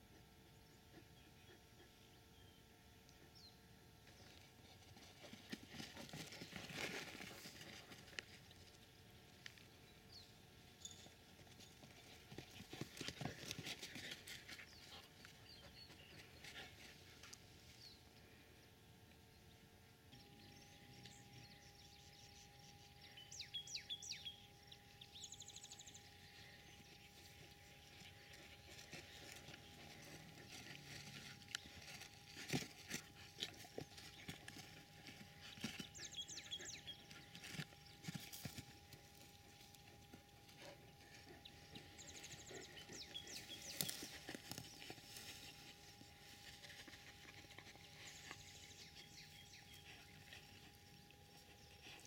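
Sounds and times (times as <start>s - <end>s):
dog paws on dry dirt: 4.2s - 9.7s, 10.8s - 17.6s, 25.1s - 52.0s.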